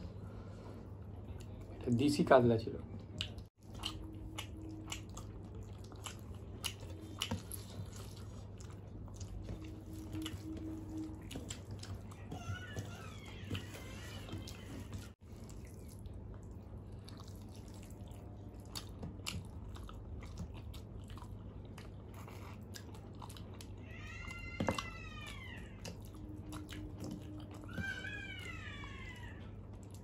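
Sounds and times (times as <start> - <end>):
wet chewing: 3.1 - 30.0
cat meowing: 12.0 - 15.0, 23.8 - 29.5.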